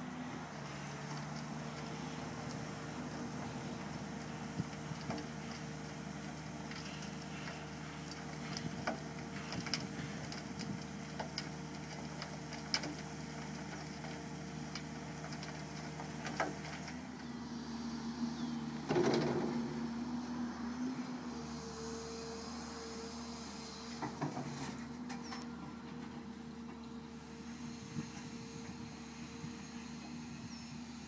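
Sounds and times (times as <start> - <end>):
excavator diesel engine running: 0.0 - 31.0
drum screener sifting soil: 0.5 - 17.1.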